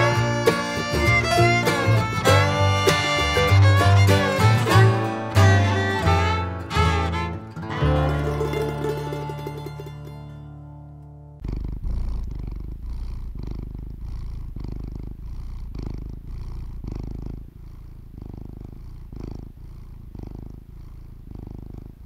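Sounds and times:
cat purring: 0.0 - 5.5, 11.4 - 22.0.

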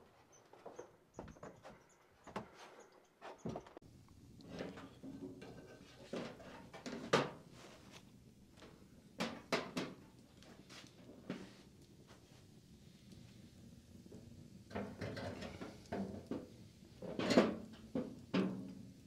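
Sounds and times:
tin oven knocking and clunking: 4.4 - 7.5, 9.2 - 10.2, 14.7 - 18.9.

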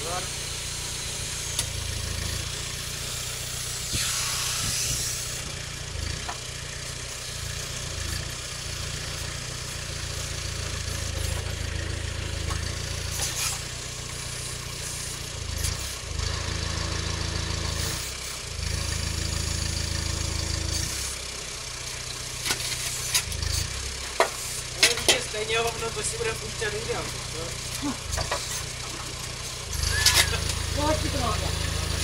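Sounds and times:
tractor engine running: 0.0 - 32.0
sharp knocks and clatter: 22.4 - 25.9, 28.1 - 30.6.

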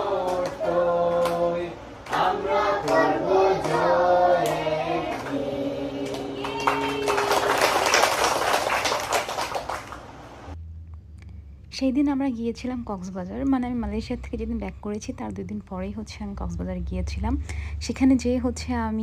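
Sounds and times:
children singing in chorus: 2.1 - 6.6
fast clapping by many hands: 6.0 - 10.1.

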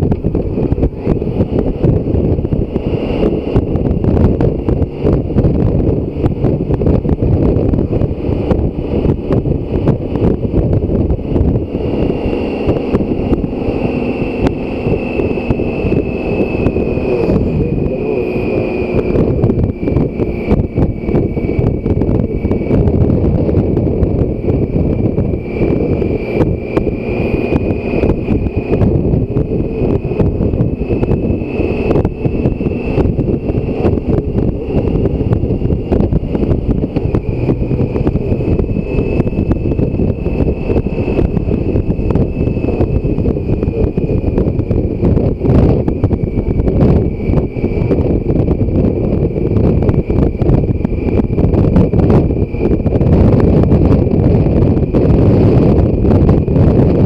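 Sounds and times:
motorcycle engine running: 0.0 - 57.0
wind buffeting microphone: 0.0 - 57.0.

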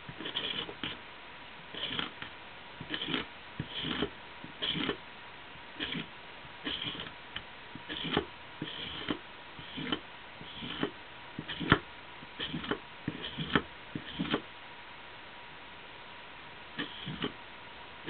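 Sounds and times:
faint steady hum: 0.0 - 18.0
hand tool scraping: 0.1 - 1.0, 1.7 - 5.0, 5.8 - 7.1, 7.8 - 11.8, 12.4 - 14.4, 16.8 - 17.3.

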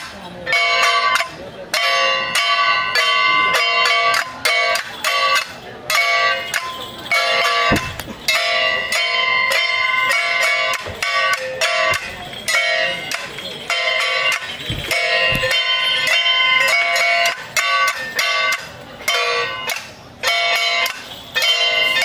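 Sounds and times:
dull thump: 7.6 - 8.4, 14.6 - 15.7.

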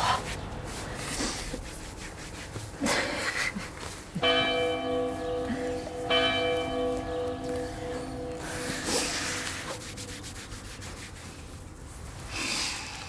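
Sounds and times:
church bell striking: 4.2 - 11.0.

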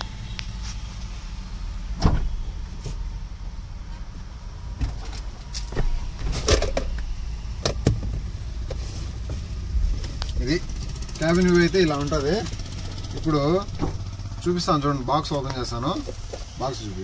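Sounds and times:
steady low rumble: 0.0 - 17.0
truck door unlatching: 2.0 - 2.4.

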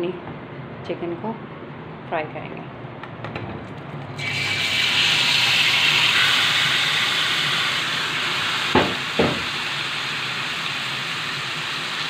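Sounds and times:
chicken sizzling in hot oil: 4.2 - 12.0.

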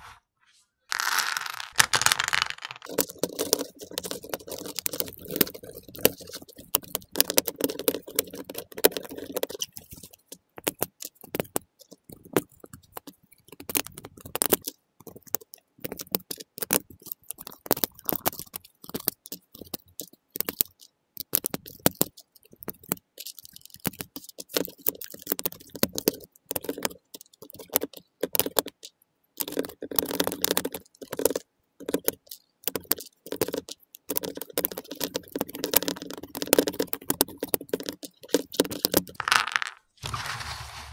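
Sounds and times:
plastic pieces rattling and scraping: 0.9 - 11.6, 32.8 - 40.9.

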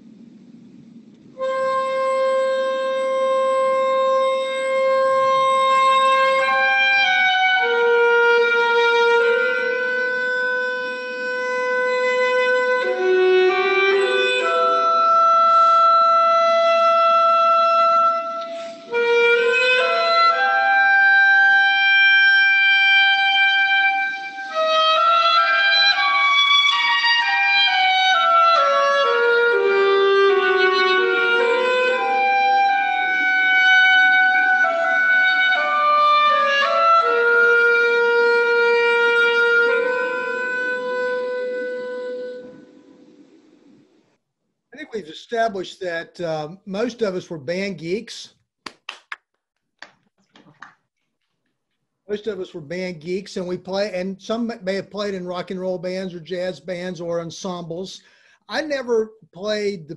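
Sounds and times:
solo clarinet melody: 1.4 - 43.5.

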